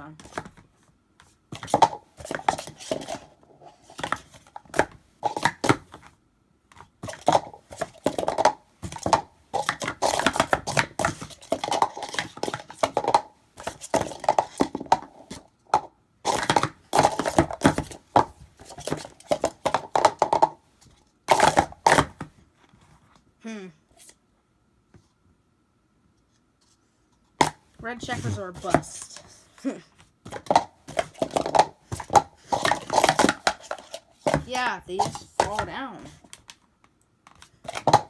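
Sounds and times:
plastic cups clacking: 1.5s - 20.6s, 21.3s - 22.3s, 30.3s - 36.6s, 37.2s - 38.0s.

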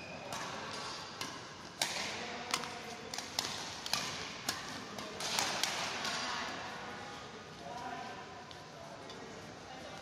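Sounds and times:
racket striking shuttlecock: 0.3s - 6.2s.

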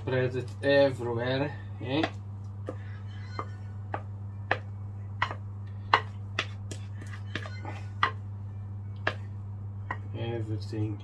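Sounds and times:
steady low hum: 0.0s - 11.0s
utensil tapping on baking tray: 3.9s - 8.2s, 9.0s - 9.3s.

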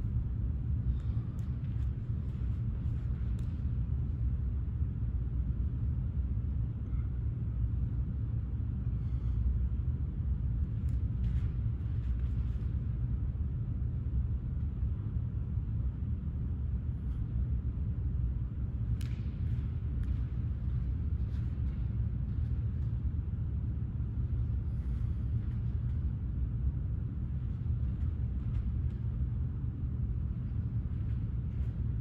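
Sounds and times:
steady low rumble: 0.0s - 32.0s.

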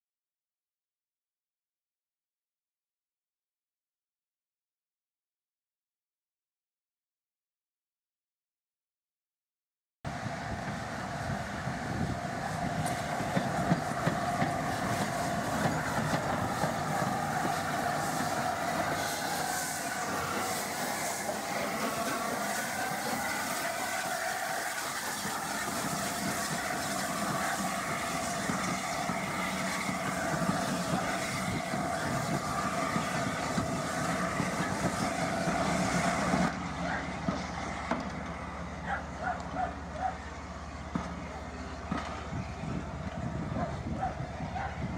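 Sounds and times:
wind buffeting microphone: 10.1s - 36.6s, 41.8s - 44.9s
steam train passing: 10.1s - 44.9s
wavering high squeal: 11.3s - 37.6s.

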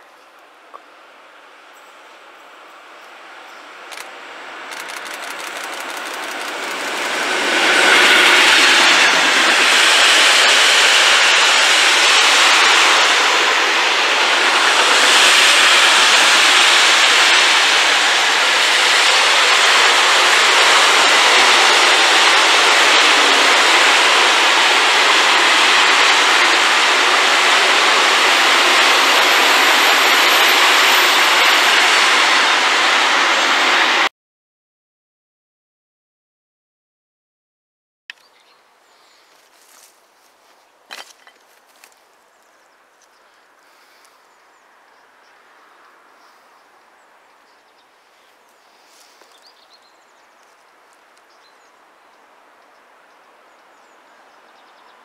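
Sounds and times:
freight train passing: 0.4s - 34.1s.

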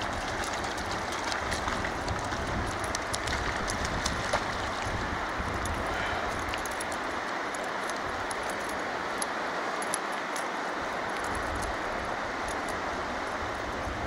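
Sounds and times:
river rushing over stones: 0.0s - 14.0s
faint ticks: 5.5s - 11.8s.

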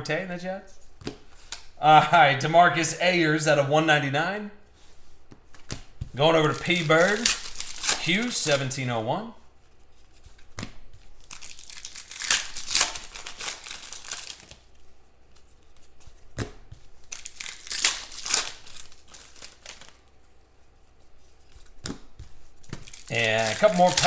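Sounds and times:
cards sliding and shuffling: 0.8s - 1.8s, 4.7s - 8.8s, 9.8s - 24.0s
foil wrappers crinkling and tearing: 6.2s - 8.8s, 11.0s - 14.8s, 17.0s - 20.2s, 22.6s - 24.0s.

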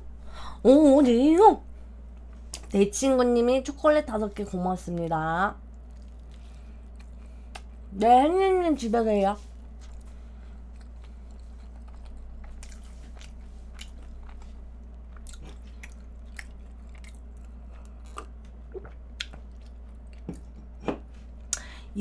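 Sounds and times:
low steady hum: 0.0s - 22.0s
chewing pastry: 5.6s - 7.8s, 9.4s - 20.8s.

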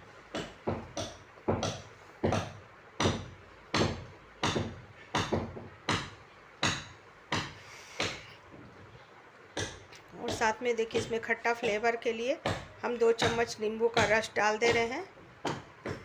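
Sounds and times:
wooden spatula knocking on pan: 0.3s - 8.2s.

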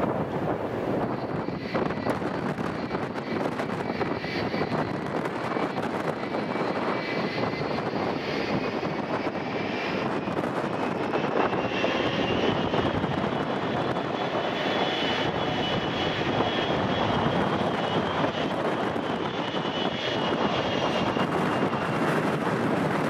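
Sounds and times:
jet engines rushing and whining: 0.0s - 23.0s.

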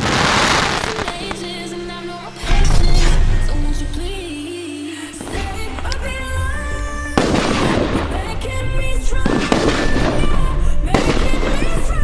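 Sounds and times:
firework shells bursting with crackle: 0.0s - 1.6s.

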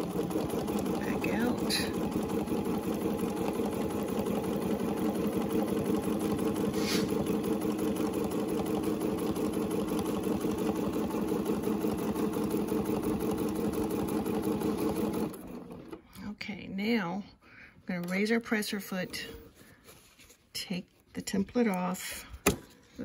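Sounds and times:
sewing machine running: 0.0s - 16.0s.

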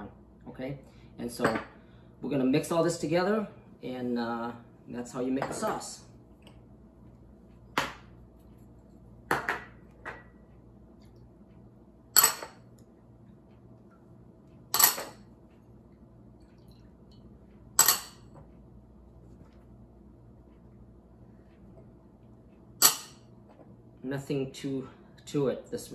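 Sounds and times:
glass bowls clinking: 17.8s - 18.3s.

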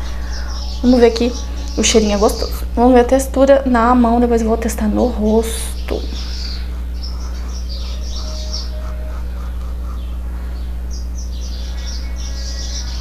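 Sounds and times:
low electrical hum: 0.0s - 13.0s
small birds chirping: 0.0s - 13.0s.

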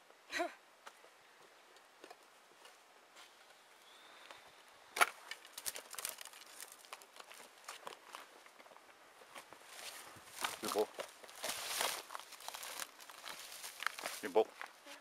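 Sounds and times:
footsteps through dry grass: 5.4s - 14.8s.

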